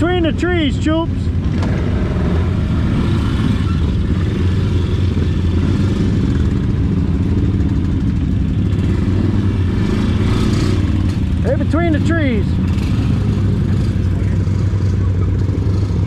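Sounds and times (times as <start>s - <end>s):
atv engine running: 0.0s - 16.0s.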